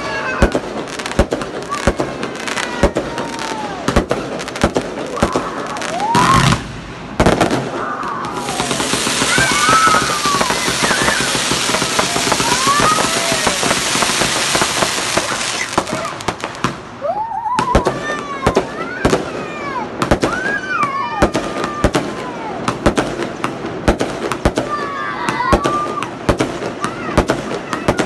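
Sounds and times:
fireworks crackling and banging: 0:00.0 - 0:28.0.

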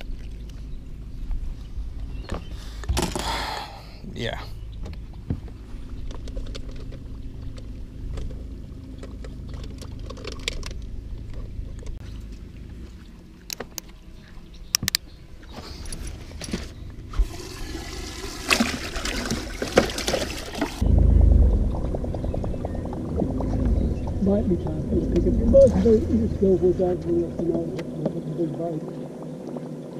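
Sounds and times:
water rushing and splashing: 0:17.1 - 0:29.9
steady low hum: 0:20.8 - 0:29.9.

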